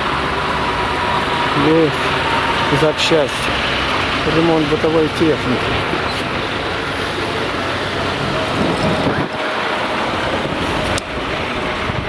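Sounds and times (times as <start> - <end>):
street traffic hum: 0.0 - 12.0
wind noise on microphone: 8.1 - 12.0.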